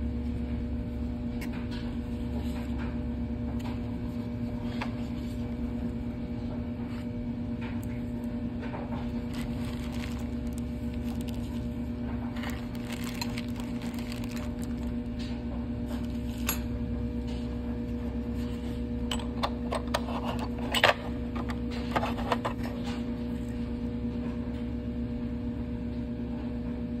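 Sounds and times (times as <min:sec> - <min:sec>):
steady low hum: 0:00.0 - 0:27.0
plastic wrapping crinkling: 0:09.0 - 0:15.3.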